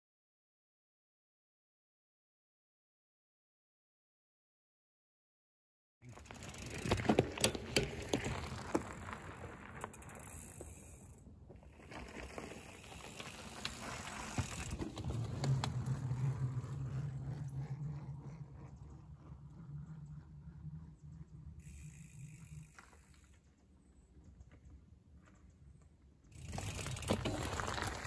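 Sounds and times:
bicycle tyres rolling: 6.0s - 28.0s.

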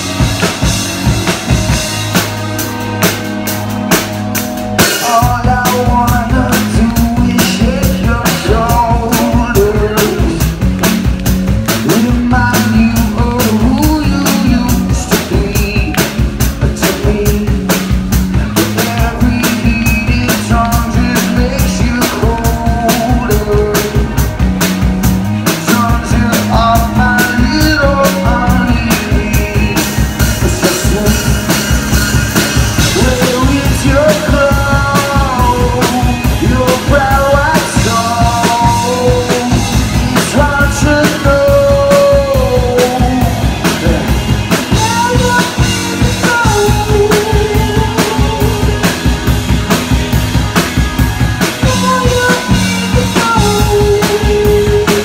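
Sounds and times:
bass guitar: 0.0s - 55.0s
drum kit beat: 0.0s - 55.0s
electric guitars: 0.0s - 55.0s
man singing into a microphone: 4.8s - 24.4s, 25.4s - 31.7s, 32.8s - 49.0s, 51.5s - 55.0s.

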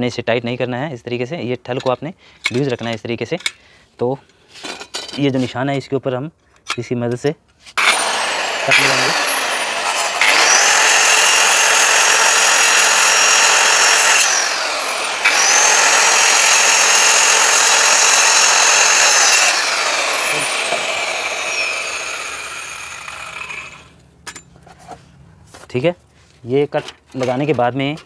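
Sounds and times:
handheld circular saw cutting: 7.8s - 24.0s.

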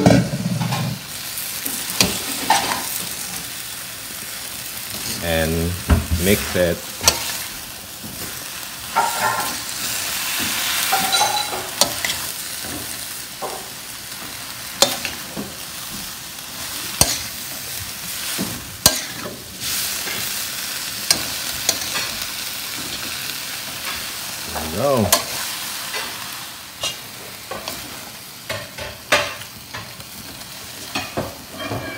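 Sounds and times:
food sizzling in a wok: 0.0s - 31.9s
metal spatula clacking on pan: 14.8s - 15.2s, 17.0s - 17.3s, 18.8s - 19.3s.

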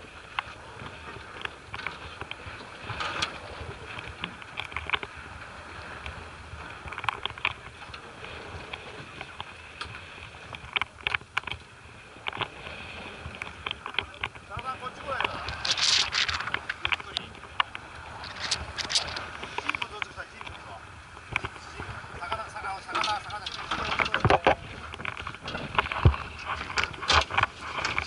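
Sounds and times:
water slapping boat hull: 0.0s - 28.0s
short sharp splashes and clicks: 13.3s - 21.7s.

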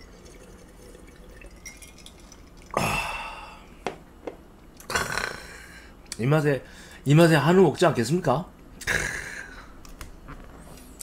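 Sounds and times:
man swallowing: 4.8s - 5.7s, 8.8s - 9.7s.

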